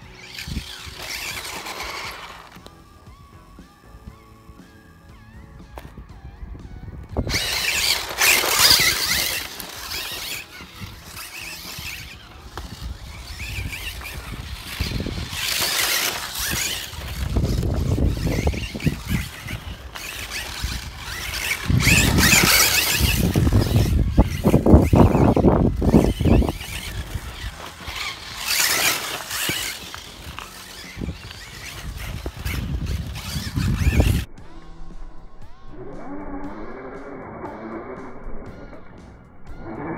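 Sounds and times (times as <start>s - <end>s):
rc car motor bursts: 0.0s - 5.5s, 7.2s - 34.3s
tyres scrabbling over gravel: 0.1s - 2.8s, 7.2s - 34.3s.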